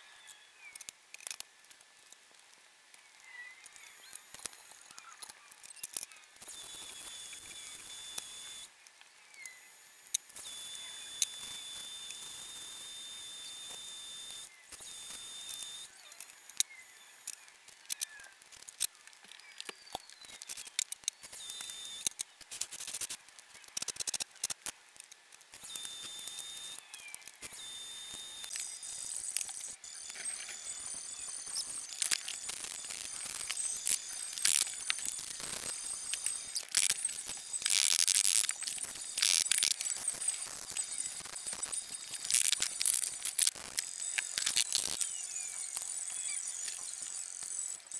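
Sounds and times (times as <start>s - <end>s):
scattered clicks and ticks: 0.2s - 47.9s
welder hissing crackle: 25.5s - 47.6s.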